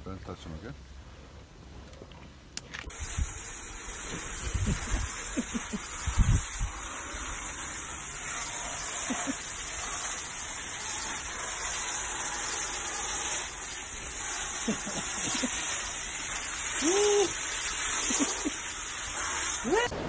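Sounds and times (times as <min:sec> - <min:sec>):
water spraying from garden hose: 0:02.8 - 0:20.0.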